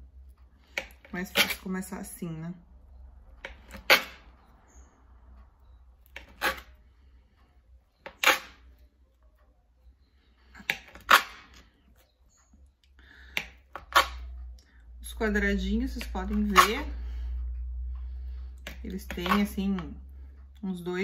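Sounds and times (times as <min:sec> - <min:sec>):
knife chopping on glass board: 0:00.7 - 0:01.6, 0:16.0 - 0:16.9, 0:18.6 - 0:19.9.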